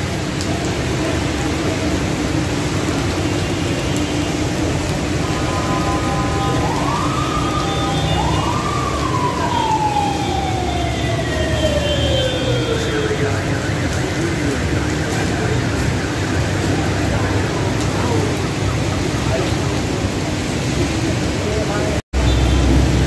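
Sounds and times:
heavy rain on street: 0.0 - 23.0
traffic: 0.0 - 23.0
siren wailing: 5.2 - 19.5.

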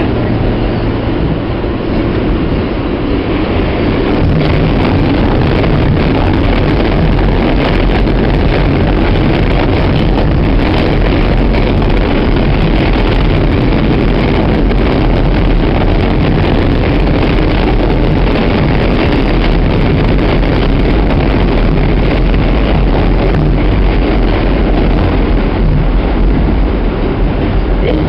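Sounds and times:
subway train wheels roaring on rails: 0.0 - 28.0.

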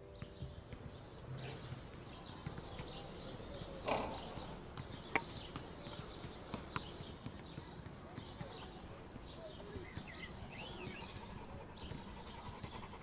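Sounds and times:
outdoor background noise: 0.0 - 13.0
basketball bouncing: 3.9 - 8.9.

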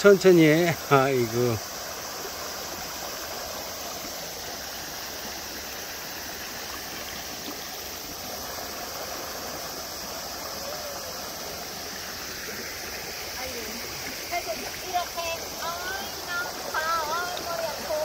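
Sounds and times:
stream flowing over rocks: 0.0 - 18.0.

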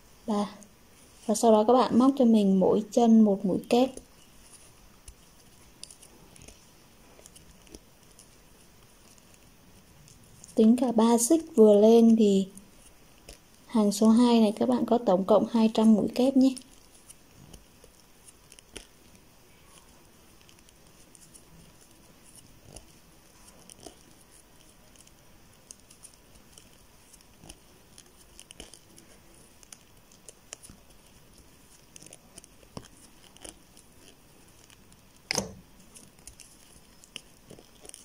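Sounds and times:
crochet hook and yarn rustling: 0.0 - 38.0.

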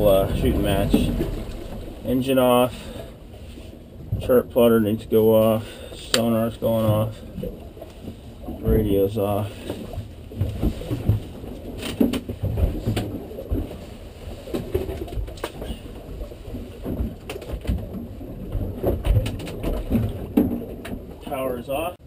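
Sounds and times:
low rumbling of wind and water: 0.0 - 22.0
knocks and clicks on boat deck: 0.7 - 2.0, 6.0 - 7.2, 7.8 - 13.7, 14.5 - 15.8, 16.8 - 21.2.

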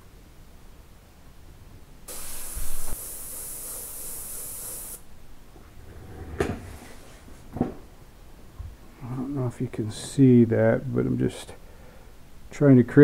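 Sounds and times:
airbrush spraying hiss: 2.1 - 5.1.

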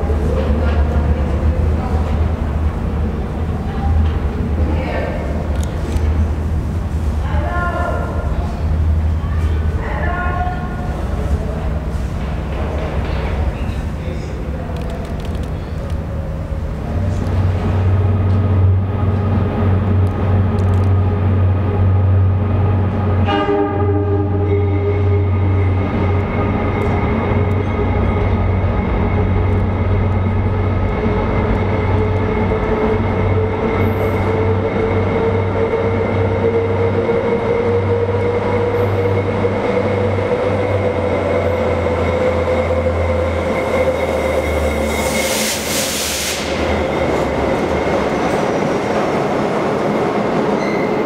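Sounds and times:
train low drone: 0.0 - 51.0
train horn blast: 23.2 - 25.6.

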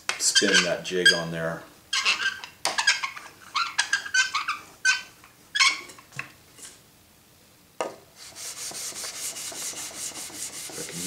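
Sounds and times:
rubber roller squeaking: 0.2 - 6.1.

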